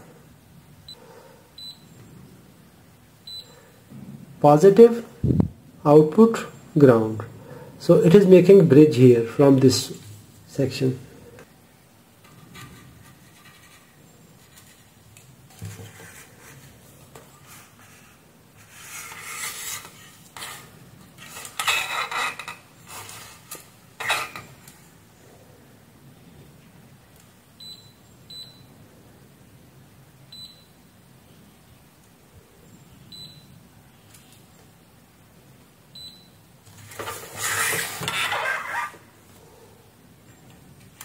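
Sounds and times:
probes rubbing and scraping board: 15.6 - 24.5, 36.8 - 39.1.

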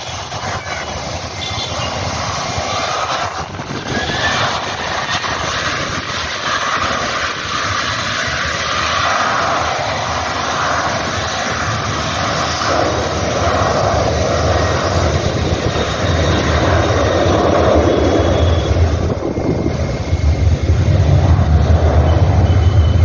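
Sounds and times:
passing vehicles rushing: 0.0 - 23.0
deep engine drone: 8.9 - 23.0.

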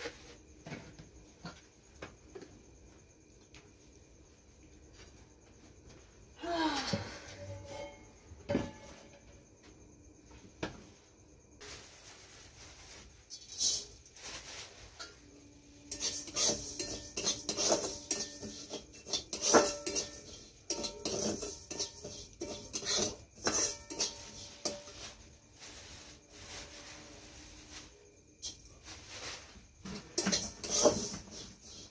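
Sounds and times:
metal spatula scraping wok: 13.0 - 15.2, 15.8 - 31.9
wok ringing: 15.8 - 25.2.

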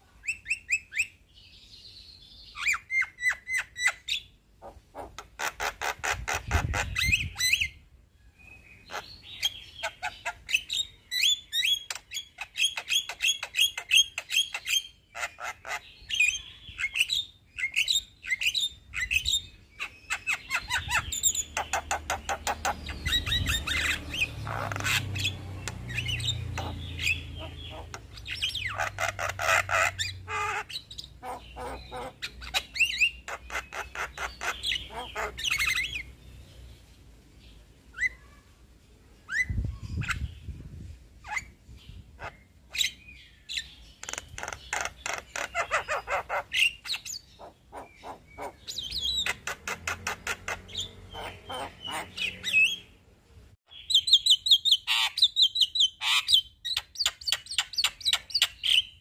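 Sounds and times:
bird chattering trills: 2.5 - 7.8, 8.8 - 36.1, 43.6 - 52.9.

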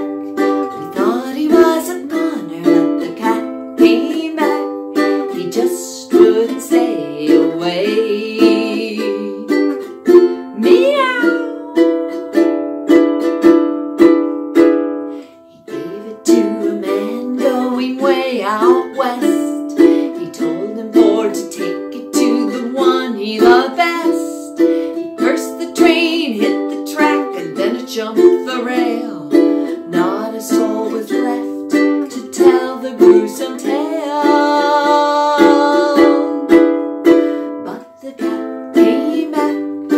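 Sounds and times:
woman singing: 0.0 - 12.2, 15.5 - 39.9
ukulele strumming: 0.0 - 39.9.

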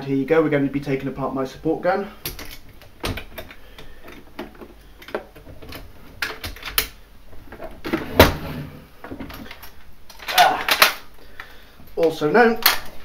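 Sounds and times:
plastic and metal clicks and knocks: 2.2 - 8.3.

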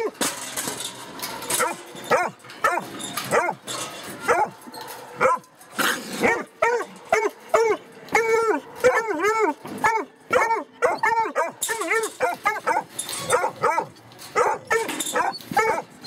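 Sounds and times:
puppies barking: 1.5 - 16.0.

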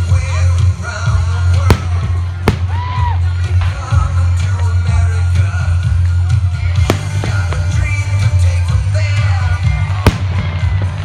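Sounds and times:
loud music: 1.4 - 5.4, 6.7 - 11.0
fireworks bangs: 1.6 - 3.2, 6.8 - 8.0, 10.0 - 11.0.

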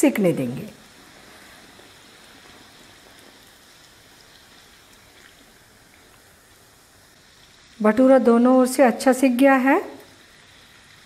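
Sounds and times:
hot oil sizzling: 0.0 - 11.0.

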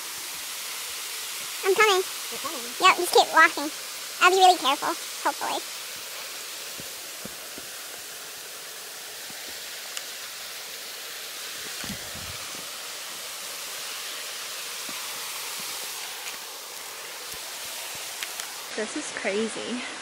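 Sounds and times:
creek running over rocks: 0.0 - 20.0.

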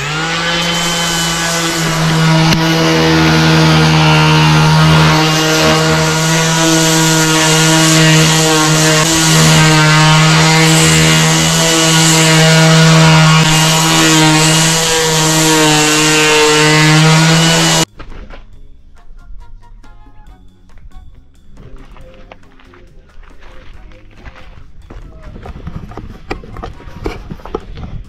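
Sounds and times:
orbital sander on wood: 0.0 - 17.9.

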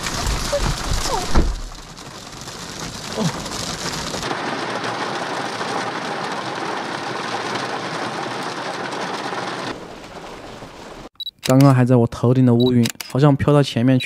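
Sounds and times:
heavy rain and hail: 0.0 - 11.1.

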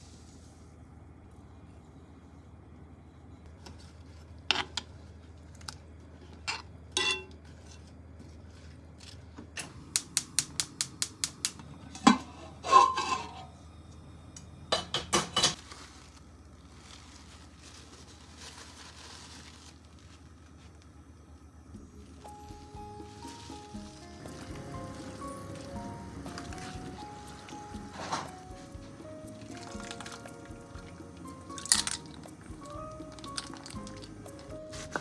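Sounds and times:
metal spoon clinking on pots: 6.5 - 7.4
pot and lid clanking: 6.5 - 7.4, 12.0 - 13.5, 27.3 - 28.5.

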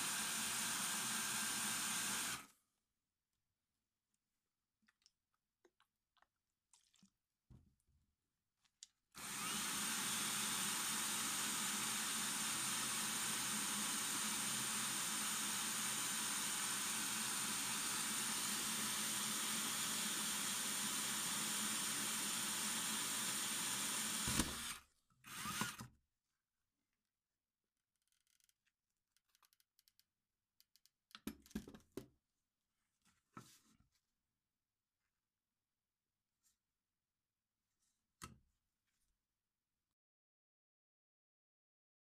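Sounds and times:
power drill grinding through tile: 0.0 - 2.5, 9.2 - 25.9
small clicks: 28.0 - 31.6.

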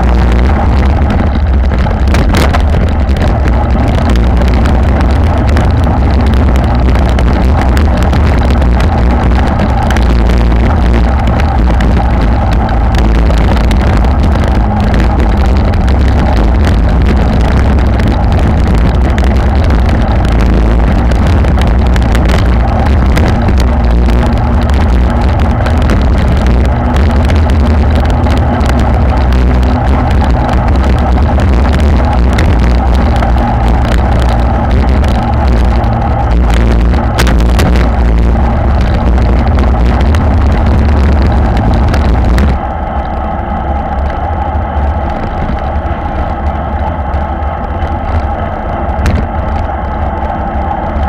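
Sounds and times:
tyres humming on brick paving: 0.0 - 51.0
wind buffeting microphone: 0.0 - 51.0.

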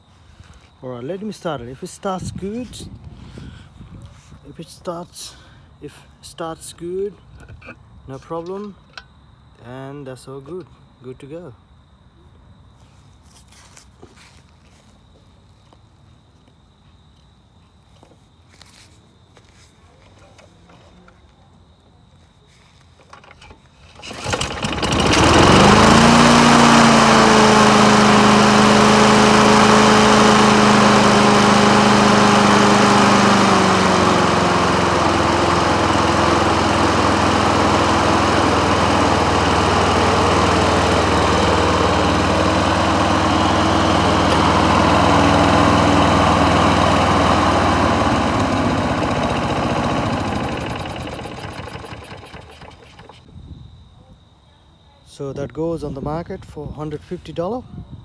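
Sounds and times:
lawn mower engine running: 23.1 - 53.3.

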